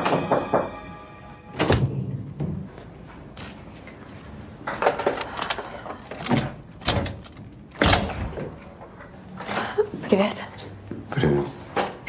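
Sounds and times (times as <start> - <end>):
door lock and handle clunks: 5.2 - 8.6.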